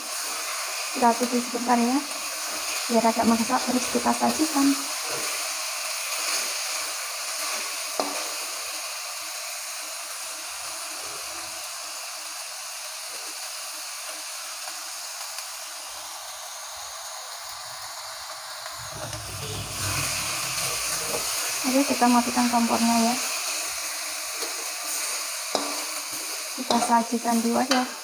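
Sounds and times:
sauce sizzling in a wok: 0.0s - 28.0s
spatula knocking wok: 25.5s - 28.0s.

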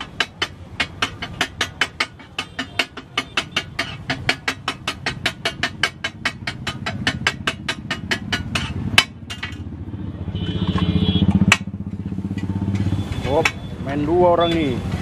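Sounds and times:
metal spatula tapping griddle: 0.0s - 9.8s, 11.3s - 13.7s
vehicle engine rumble: 0.0s - 15.0s.

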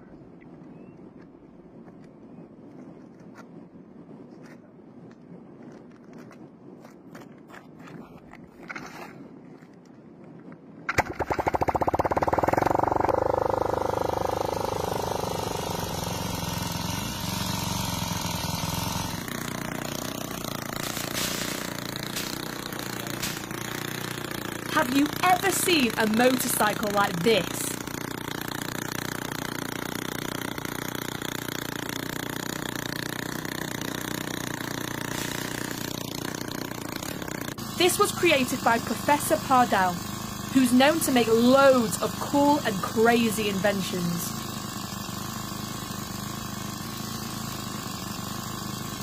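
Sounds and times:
engine chugging rapidly: 10.9s - 49.0s.

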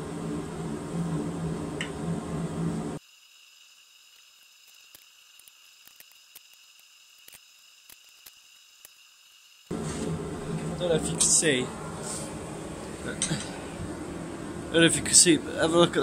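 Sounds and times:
faint ticks and crackles: 4.1s - 9.7s.

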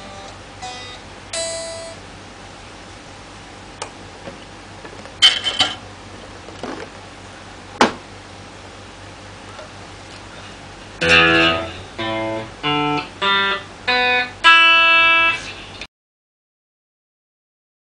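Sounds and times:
electric guitar note: 0.0s - 2.0s, 11.0s - 15.9s.

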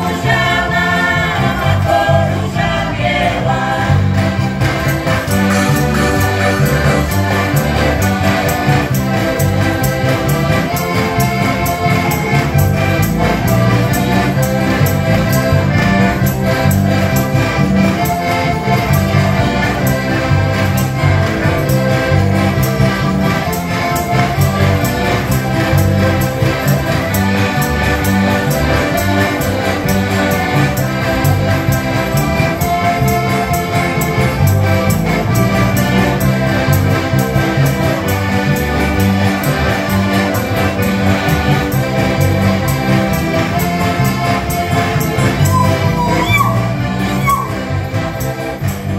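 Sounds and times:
acoustic guitar: 0.0s - 48.9s
bass guitar: 0.0s - 48.9s
button accordions: 0.0s - 48.9s.

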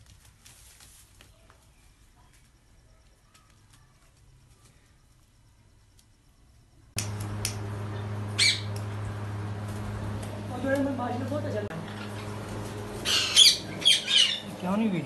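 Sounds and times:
steady low hum: 1.8s - 15.0s
parrot squawk: 8.4s - 8.7s, 13.0s - 14.5s.

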